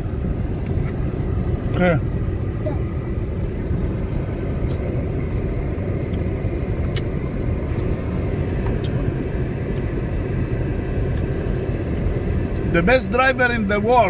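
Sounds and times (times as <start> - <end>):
car rumbling on dirt track: 0.0 - 14.0.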